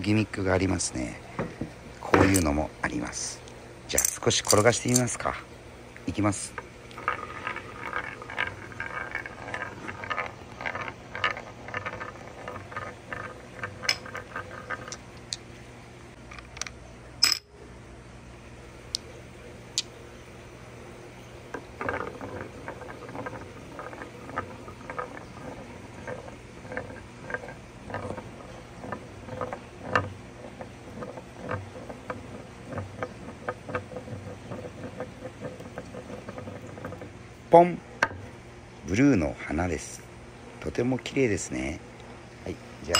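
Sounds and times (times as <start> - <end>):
marbles rattling in wooden bowl: 6.4 - 15.4, 21.5 - 37.2.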